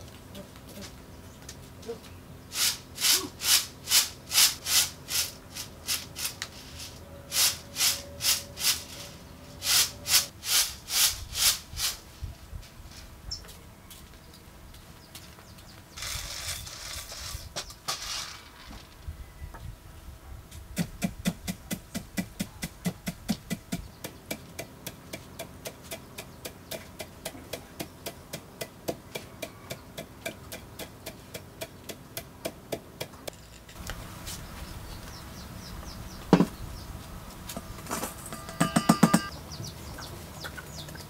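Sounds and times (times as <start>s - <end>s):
peanuts rattling poured from tray: 16.0s - 19.0s.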